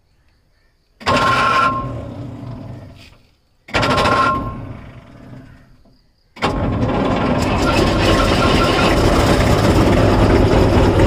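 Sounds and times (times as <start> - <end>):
road roller engine starting: 1.0 - 11.0.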